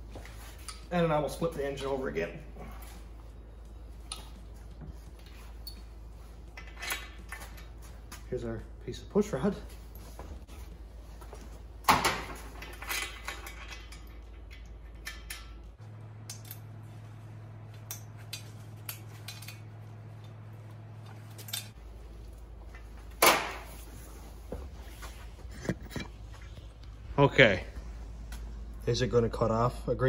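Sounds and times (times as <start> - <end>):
metal parts clinking and knocking: 6.5 - 7.8, 11.9 - 15.7, 17.8 - 20.4, 21.0 - 21.8.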